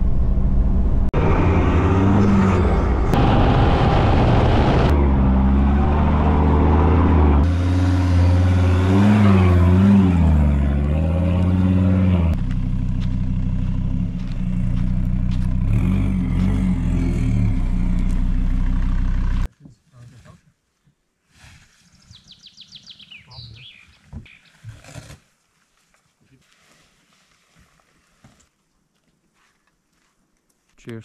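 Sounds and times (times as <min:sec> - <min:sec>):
car engine revving: 0:00.0 - 0:19.5.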